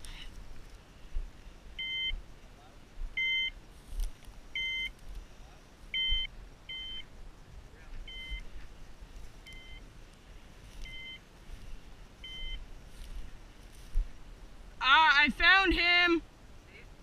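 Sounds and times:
two-pitch electronic beeps: 0:01.8 - 0:02.2, 0:03.2 - 0:03.6, 0:04.6 - 0:04.9, 0:05.9 - 0:07.1, 0:08.0 - 0:08.5, 0:09.4 - 0:09.8, 0:10.8 - 0:11.2, 0:12.2 - 0:12.6.

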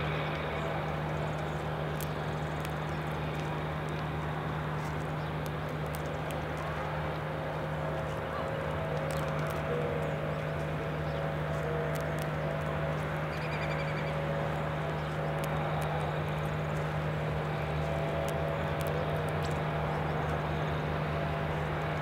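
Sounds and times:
steady low hum: 0:00.0 - 0:22.0
small clicks: 0:00.3 - 0:07.3, 0:08.0 - 0:14.2
bird trilling: 0:13.3 - 0:14.2.

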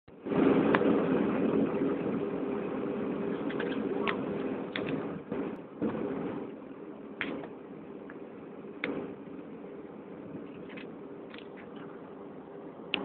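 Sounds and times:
jet engines roaring in cabin: 0:00.1 - 0:13.0
sharp clicks and rattles: 0:03.3 - 0:06.1, 0:10.4 - 0:12.0.

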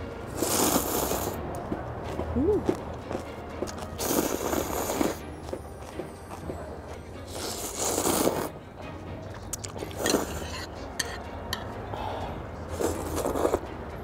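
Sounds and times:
slurping noodles: 0:00.3 - 0:01.4, 0:04.0 - 0:05.2, 0:07.3 - 0:08.5, 0:09.5 - 0:10.6, 0:12.7 - 0:13.6
chewing: 0:09.5 - 0:10.4.

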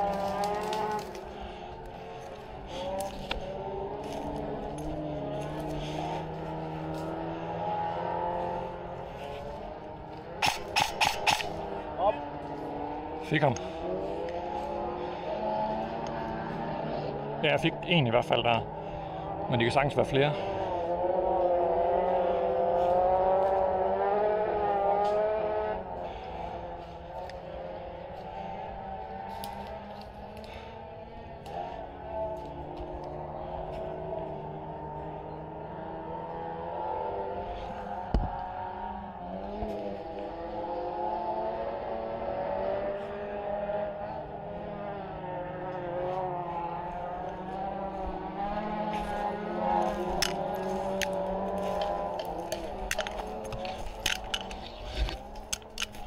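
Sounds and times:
motor engine droning: 0:00.0 - 0:56.0.

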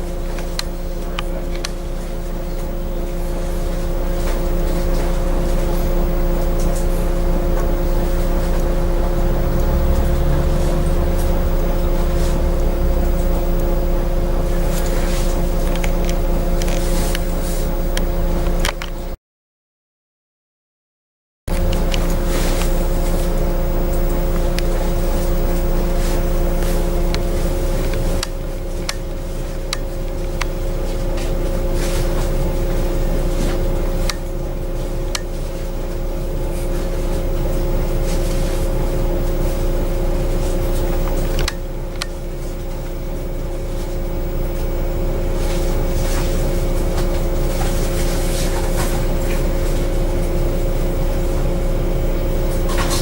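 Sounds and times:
bus engine idling: 0:00.0 - 0:17.9, 0:21.8 - 0:36.5
two-note hum: 0:07.4 - 0:17.2.

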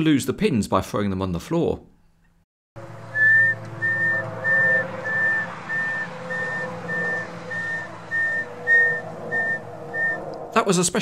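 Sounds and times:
low engine drone: 0:02.8 - 0:11.0
reversing alarm beeps: 0:03.2 - 0:10.2.

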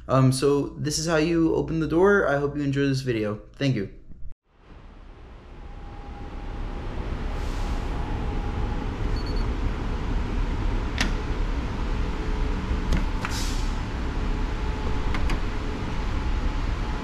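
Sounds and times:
steady low rumble: 0:04.2 - 0:17.0
card reader beeps: 0:09.1 - 0:09.5.

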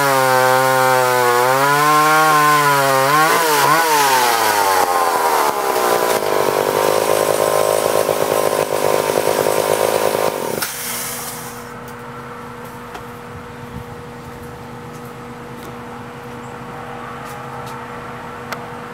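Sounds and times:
chainsaw revving and idling: 0:00.0 - 0:11.7.

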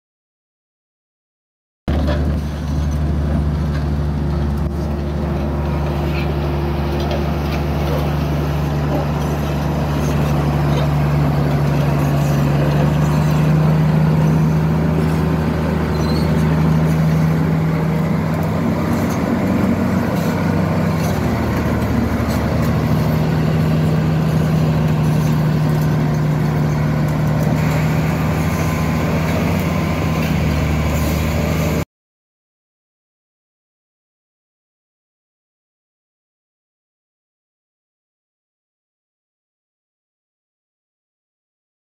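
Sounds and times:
bulldozer diesel engine hum: 0:01.9 - 0:31.8.

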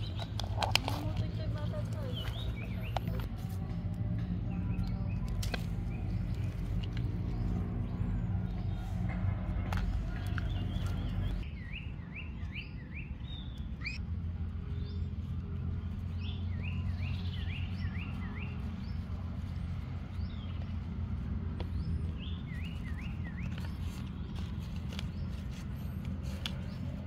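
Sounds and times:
songbird singing: 0:00.0 - 0:27.0.

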